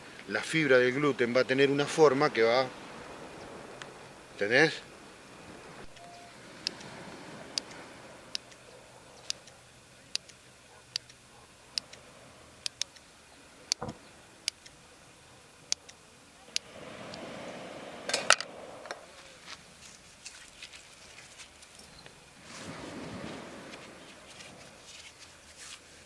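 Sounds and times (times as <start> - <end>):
sharp click: 9.2 - 11.2, 12.6 - 13.0
rustling handling: 19.2 - 22.0, 23.8 - 26.0.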